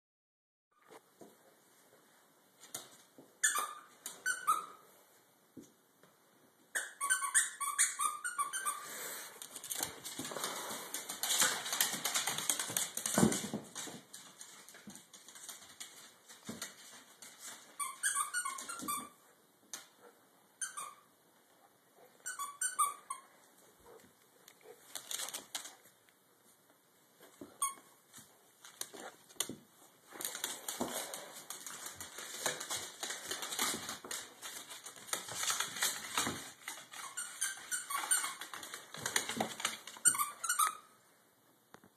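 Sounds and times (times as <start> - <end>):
squeaky toy squeaks: 3.4 - 4.8, 6.7 - 8.8, 17.8 - 19.2, 20.6 - 21.1, 22.2 - 23.3, 27.5 - 27.9, 36.9 - 38.6, 40.0 - 41.0
dog claws scrabbling on wood floor: 9.4 - 17.8, 23.8 - 25.9, 27.2 - 40.6.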